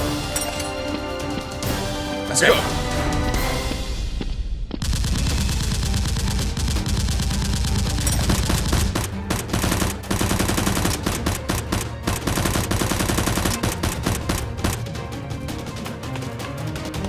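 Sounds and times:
rapid automatic gunfire: 4.8s - 14.9s.

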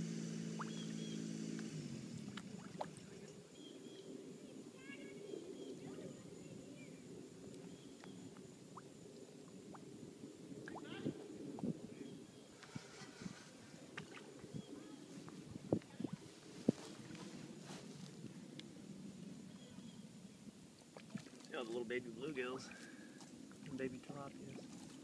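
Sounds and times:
engine hum: 0.0s - 6.0s
low background hiss: 0.0s - 25.0s.

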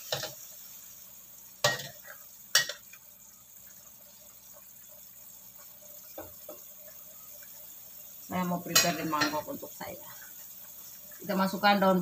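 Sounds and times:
simmering pot hiss: 0.0s - 12.0s.

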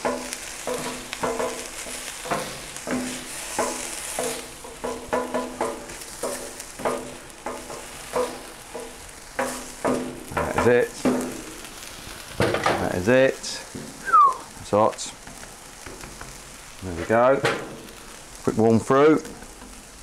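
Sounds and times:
utensil scraping steel: 0.0s - 12.1s
food sizzling on a griddle: 0.0s - 20.0s.

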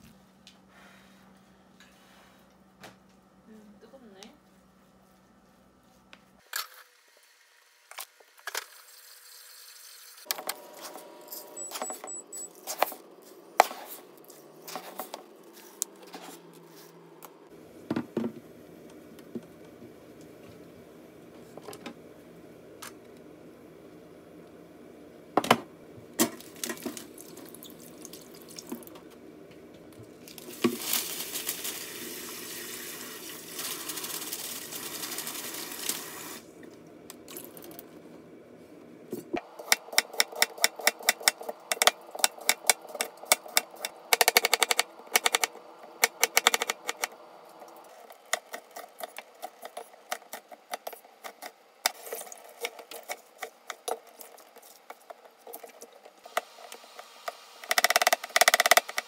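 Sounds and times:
tap water running into sink: 30.3s - 36.4s.

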